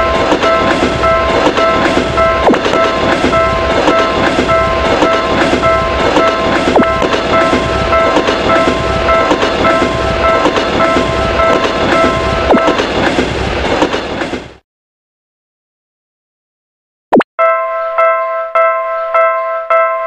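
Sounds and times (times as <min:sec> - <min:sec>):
railroad crossing bell ringing: 0:00.0 - 0:12.8, 0:17.4 - 0:20.0
passing train clickety-clack: 0:00.0 - 0:14.6.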